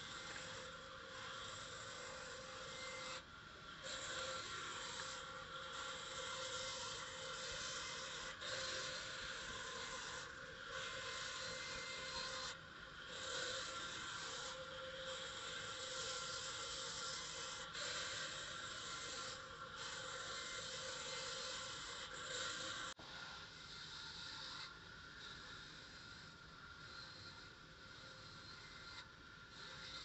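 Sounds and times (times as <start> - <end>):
band saw cutting wood: 0.0 - 23.0.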